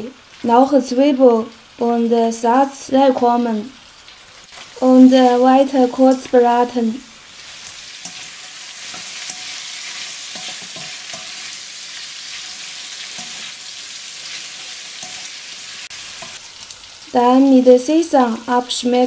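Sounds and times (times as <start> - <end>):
food sizzling in a wok: 0.0 - 19.0
spatula scraping and tapping pan: 7.6 - 11.6, 12.3 - 13.6, 14.2 - 15.4, 16.1 - 16.4.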